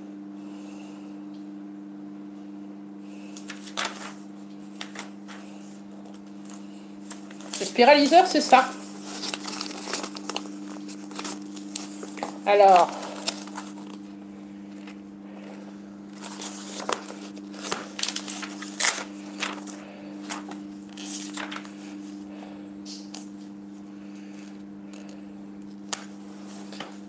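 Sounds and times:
steady low hum: 0.0s - 27.0s
catalogue pages rustling: 3.3s - 22.3s, 24.4s - 27.0s.

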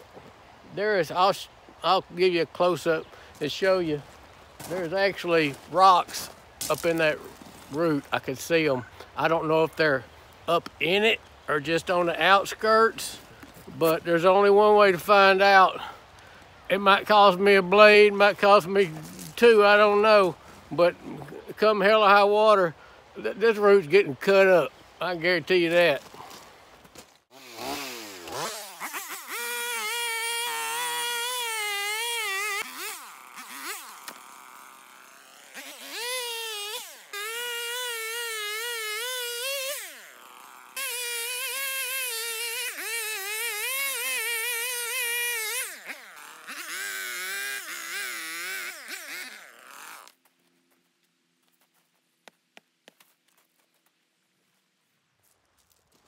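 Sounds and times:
chainsaw cutting: 27.3s - 50.2s.

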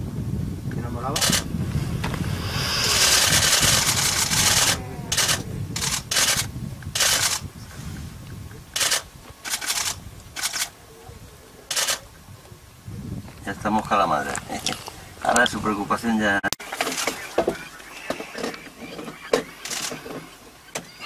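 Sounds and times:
low rumble: 0.6s - 7.0s
camera shutters firing in bursts: 4.6s - 7.4s, 8.8s - 10.7s, 11.7s - 12.0s, 19.6s - 20.0s.

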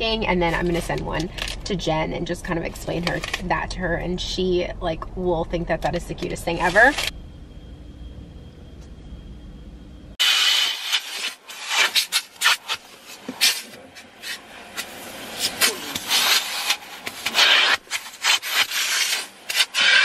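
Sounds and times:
nozzle scraping over leather seats: 10.2s - 20.0s
vacuum hose sucking air: 10.2s - 20.0s.

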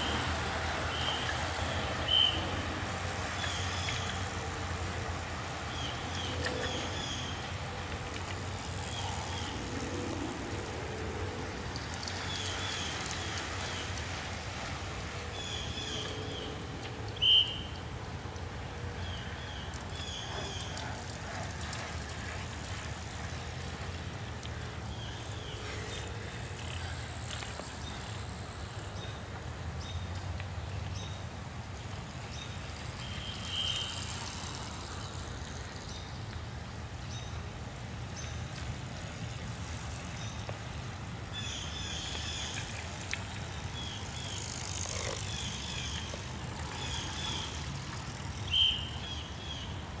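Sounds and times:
wind and road rumble: 0.0s - 50.0s.

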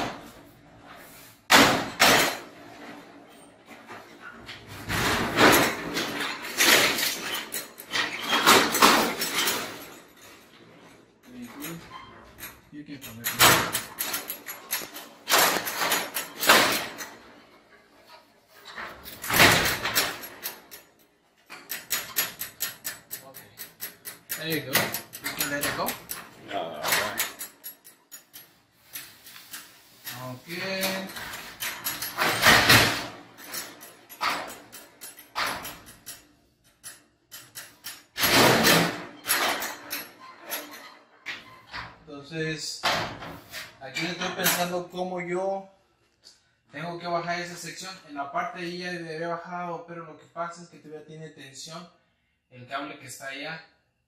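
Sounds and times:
garage door panels rattling and scraping: 0.0s - 42.1s, 42.8s - 45.2s
garage door knocks: 1.5s - 2.6s.

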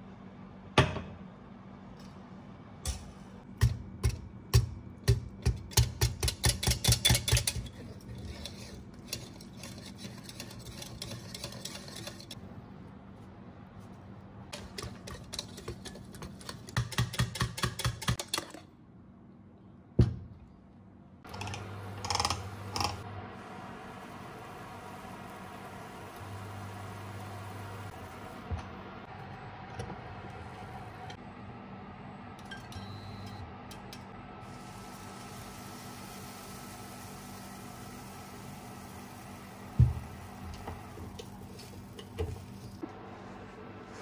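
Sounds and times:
knife scraping a waffle plate: 7.7s - 12.4s.

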